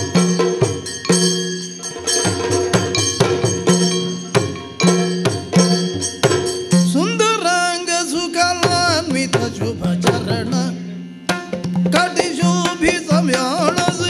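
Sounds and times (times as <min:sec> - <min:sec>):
small hand cymbals ringing: 0:00.0 - 0:07.5
person singing: 0:06.9 - 0:11.0, 0:11.9 - 0:14.0.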